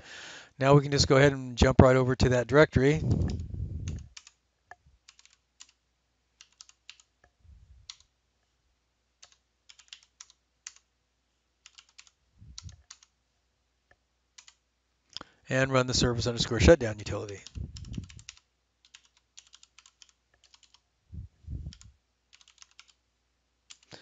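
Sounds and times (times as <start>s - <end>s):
soft low thumps: 3.0s - 4.1s, 21.1s - 21.9s
keyboard typing: 3.0s - 4.4s, 5.0s - 5.8s, 6.4s - 7.2s, 7.8s - 8.1s, 9.2s - 10.9s, 11.6s - 13.1s, 14.3s - 14.6s, 16.3s - 20.8s, 21.7s - 23.0s, 23.7s - 24.0s.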